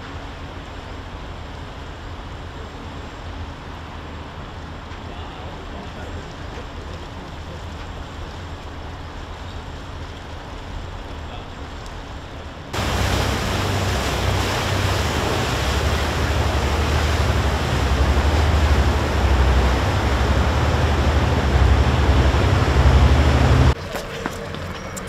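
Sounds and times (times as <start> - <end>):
flooded river rushing: 12.7 - 23.8
wind buffeting microphone: 12.8 - 23.8.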